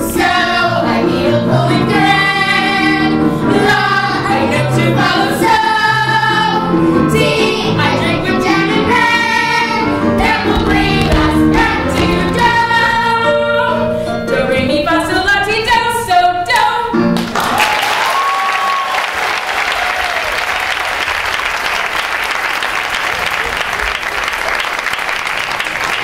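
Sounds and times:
children's chorus singing: 0:00.0 - 0:13.5
backing music: 0:00.0 - 0:17.6
audience applause: 0:17.2 - 0:26.0.

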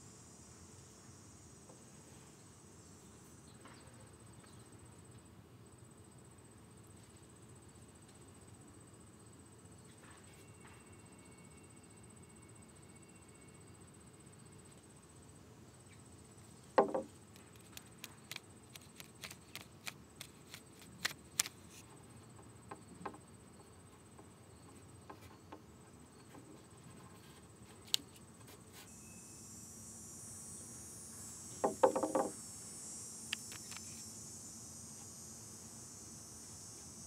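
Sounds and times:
steady high hiss: 0:00.0 - 0:09.8, 0:11.0 - 0:37.0
faint high whine: 0:08.7 - 0:22.0, 0:24.5 - 0:37.0
fingertips tapping wood: 0:16.8 - 0:21.5, 0:31.6 - 0:32.4.

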